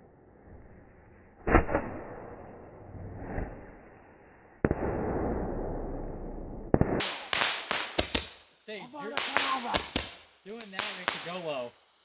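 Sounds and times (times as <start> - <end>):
fireworks bangs: 4.6 - 8.4, 9.0 - 11.7
firework hiss: 7.0 - 12.0.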